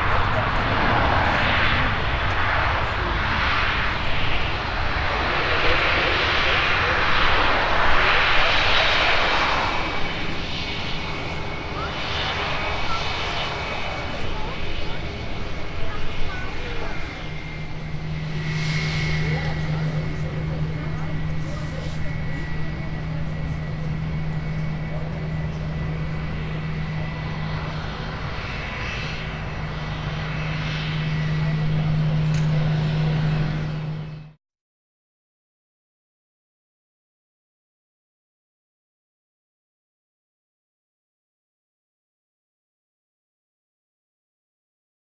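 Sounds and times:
jet engines rushing: 0.0s - 34.4s.

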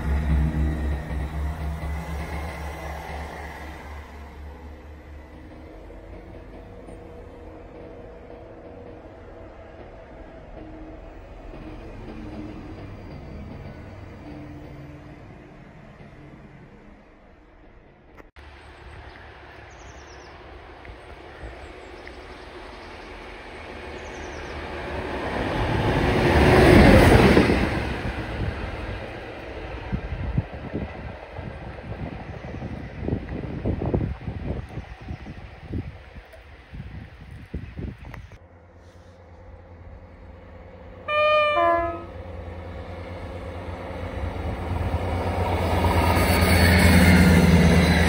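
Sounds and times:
train wheel noise: 0.0s - 19.7s, 20.3s - 48.0s
diesel locomotive engine: 0.0s - 48.0s
two-tone train horn: 41.0s - 42.4s.

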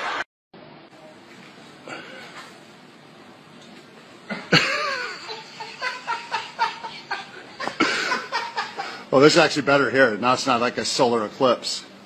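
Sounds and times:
man laughing loudly: 4.3s - 9.1s.

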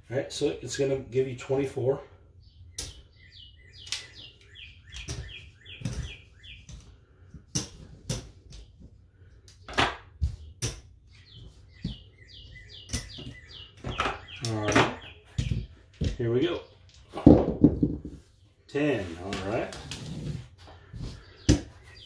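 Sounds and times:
small bird chirping: 2.3s - 7.2s, 8.1s - 19.2s, 20.8s - 22.0s.

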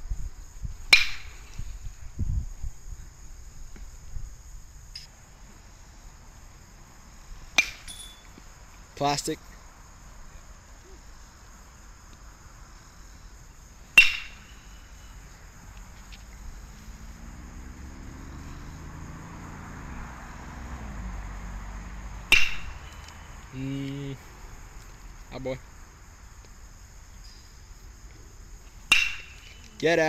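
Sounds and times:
bat hitting baseball: 0.9s - 1.6s, 7.5s - 8.4s, 13.9s - 14.6s, 22.3s - 23.0s, 28.8s - 29.7s.

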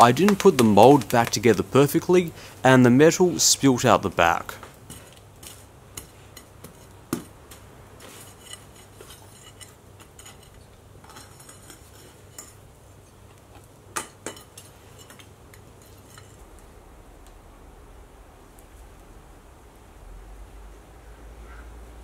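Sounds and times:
steel rod scraping through sand: 8.0s - 12.6s.

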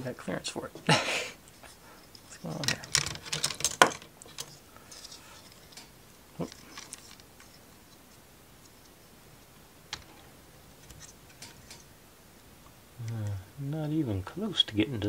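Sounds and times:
small plastic parts clicking: 2.1s - 9.0s, 10.8s - 11.9s.

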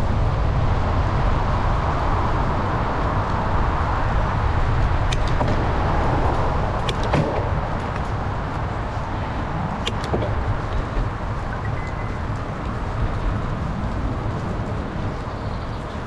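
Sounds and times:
bicycle road rumble: 0.0s - 16.0s
wind rushing over microphone: 0.0s - 16.0s
sharp clicks and rattles: 9.6s - 13.3s.

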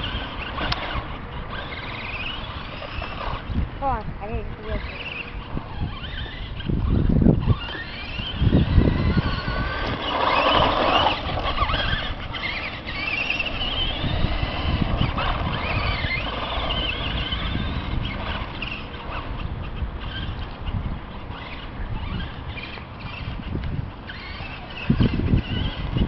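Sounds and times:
low rumble gusts: 0.0s - 26.0s
toy truck motor whining: 0.0s - 26.0s.

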